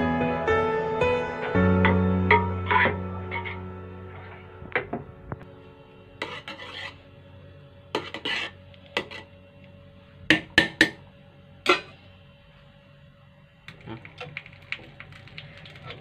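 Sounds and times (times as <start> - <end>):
metal spoon scraping a pot: 2.3 - 3.6, 6.2 - 7.0, 7.9 - 9.3.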